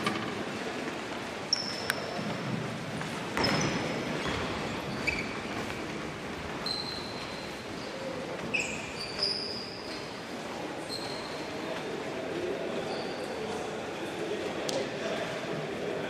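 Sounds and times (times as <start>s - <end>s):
murmur of crowd: 0.0s - 16.0s
shoes squeaking on hardwood floor: 3.4s - 11.8s.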